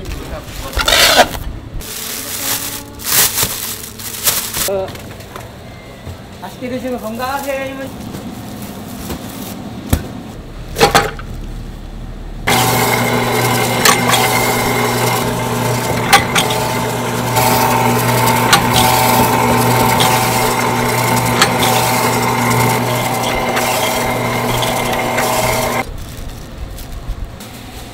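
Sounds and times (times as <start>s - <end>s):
meat slicer motor humming: 12.5s - 25.9s.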